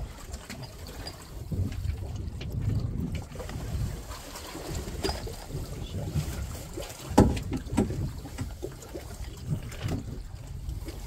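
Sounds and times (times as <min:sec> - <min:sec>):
boat noise: 0:00.0 - 0:11.0
wind buffeting microphone: 0:00.0 - 0:11.0
dull knocks: 0:07.1 - 0:08.1.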